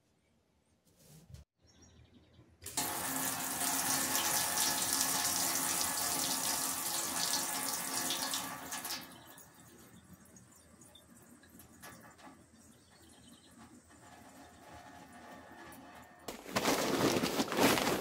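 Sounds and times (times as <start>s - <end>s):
faucet running into metal sink: 2.6s - 15.6s.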